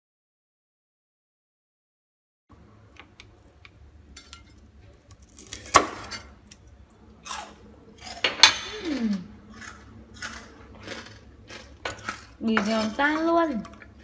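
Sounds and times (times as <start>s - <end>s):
crispy pork skin crunching: 5.1s - 6.6s, 7.2s - 13.9s.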